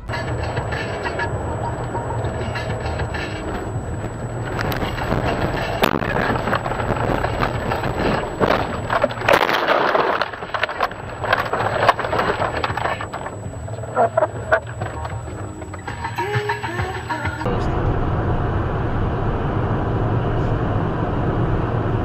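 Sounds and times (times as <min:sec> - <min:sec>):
tyres and engine rumble: 0:00.0 - 0:22.0
branches scraping and snapping: 0:02.4 - 0:15.9.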